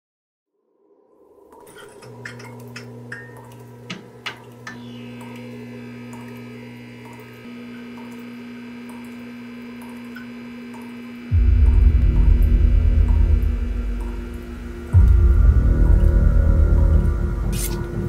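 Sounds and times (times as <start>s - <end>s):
eerie ambient drone: 0.6s - 18.0s
high steady tones: 11.3s - 18.0s.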